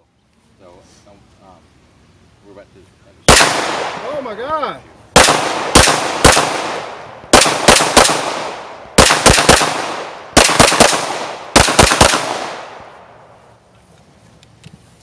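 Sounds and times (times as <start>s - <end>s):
pistol shots: 3.3s - 4.2s, 5.2s - 12.9s
gunshot echo: 3.3s - 4.3s, 5.2s - 13.0s.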